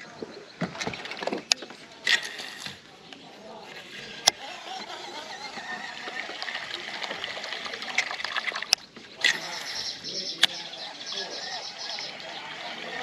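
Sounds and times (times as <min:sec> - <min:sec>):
water trickling and splashing: 0:00.0 - 0:13.0
sharp clicks: 0:00.8 - 0:03.2, 0:03.9 - 0:10.7.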